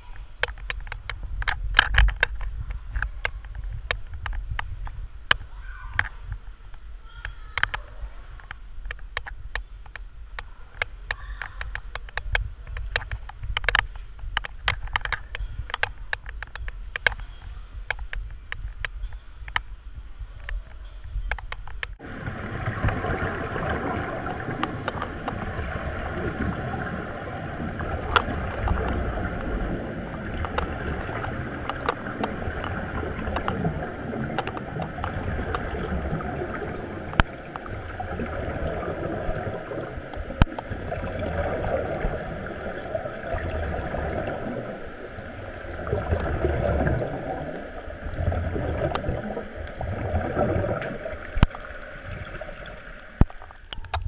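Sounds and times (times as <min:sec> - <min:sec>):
small clicks and knocks: 0:00.0 - 0:19.7, 0:20.4 - 0:22.0, 0:30.3 - 0:38.3
underwater bubbles rushing: 0:22.0 - 0:54.0.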